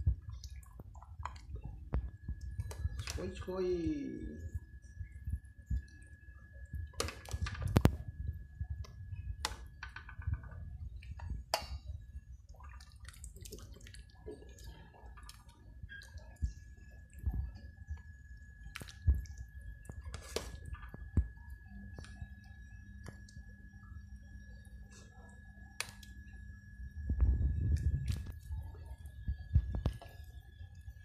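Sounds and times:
porridge sloshing: 0:00.0 - 0:03.6, 0:04.2 - 0:31.0.

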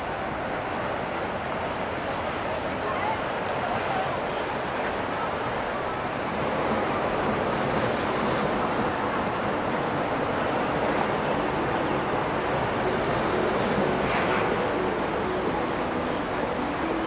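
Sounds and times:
faint boat engine hum: 0:00.0 - 0:17.0
rushing water: 0:00.0 - 0:17.0.

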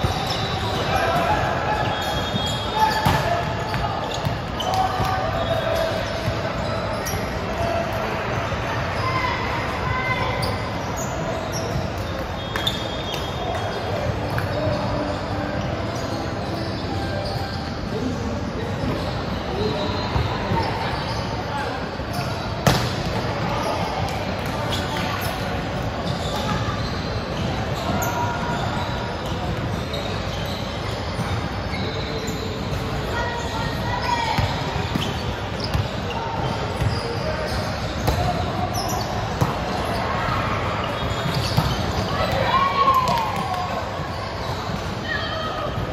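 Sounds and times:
reverberant din of voices: 0:00.0 - 0:45.9
short high squeaks: 0:10.3 - 0:13.7
balls thumping on gym floor: 0:22.6 - 0:23.1.

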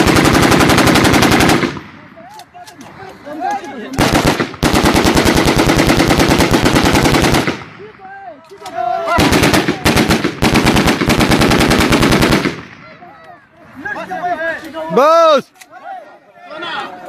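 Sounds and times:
assault rifle firing automatic bursts: 0:00.0 - 0:01.8, 0:04.0 - 0:07.7, 0:09.1 - 0:12.8.

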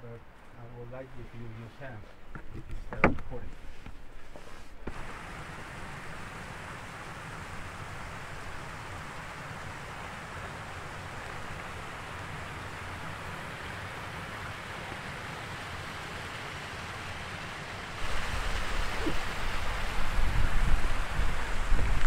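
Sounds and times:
mountain stream rushing: 0:03.3 - 0:22.0
wind buffeting microphone: 0:18.0 - 0:22.0.

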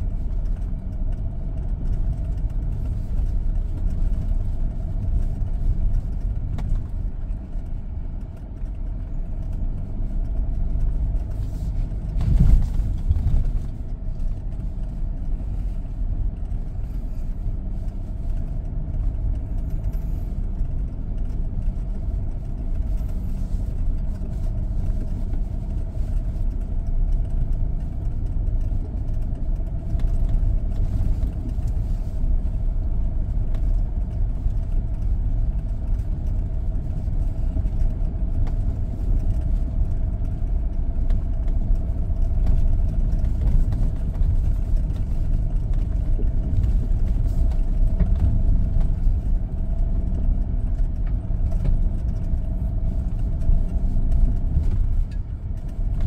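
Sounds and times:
pickup truck engine rumble: 0:00.0 - 0:56.0.

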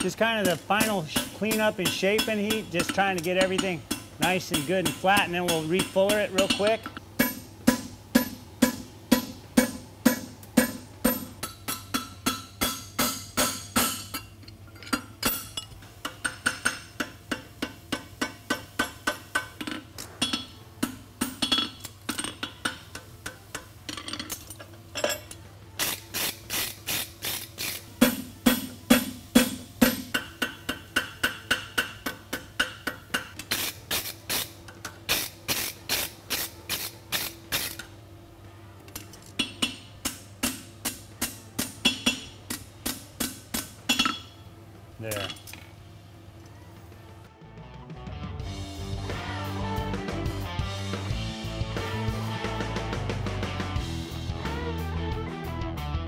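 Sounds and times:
hammer clanging on anvil: 0:00.0 - 0:14.2.

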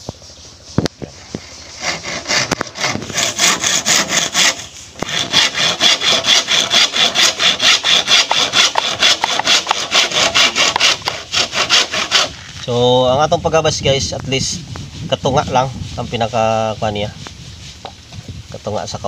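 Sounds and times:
handsaw sawing bamboo: 0:00.2 - 0:12.5.

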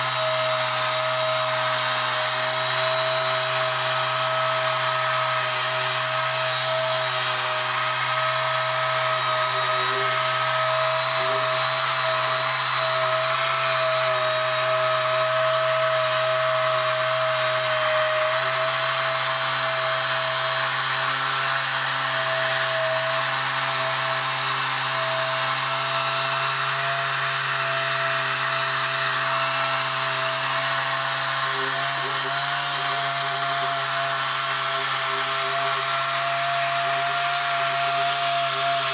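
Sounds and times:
pneumatic polisher whining: 0:00.0 - 0:38.9
polishing pad scrubbing wet metal: 0:29.1 - 0:38.9.

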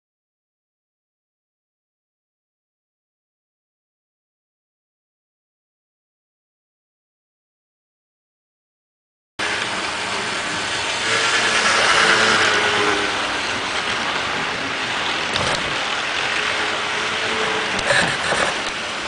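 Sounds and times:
model train motor hum: 0:09.4 - 0:19.0
wheels rolling on rail: 0:09.4 - 0:19.0.

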